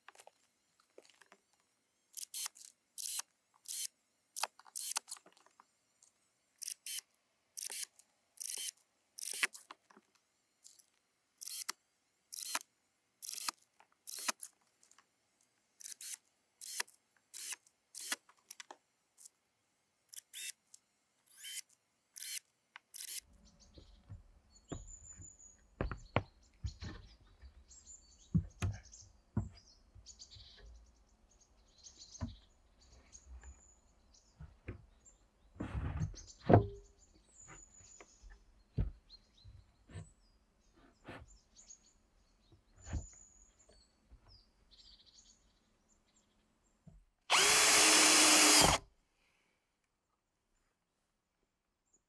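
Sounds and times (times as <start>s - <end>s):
cordless drill driving screw: 2.2s - 5.2s, 6.6s - 7.0s, 7.6s - 9.6s, 11.4s - 11.7s, 12.3s - 12.6s, 13.2s - 14.5s, 15.8s - 18.2s, 20.1s - 20.5s, 21.4s - 21.6s, 22.2s - 23.2s, 47.3s - 48.8s.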